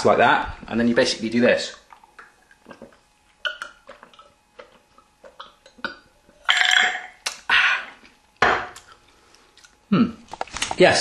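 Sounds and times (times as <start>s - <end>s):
man gulping a drink: 1.7s - 8.2s.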